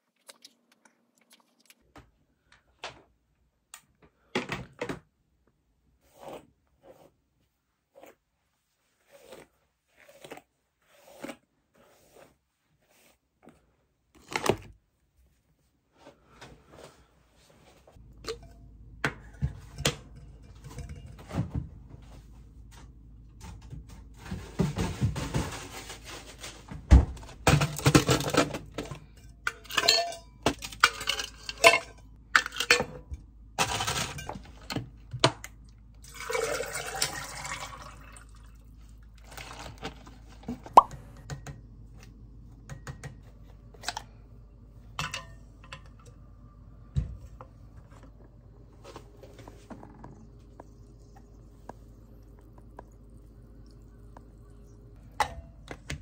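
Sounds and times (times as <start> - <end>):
clinks and knocks: 27.5 - 34.8.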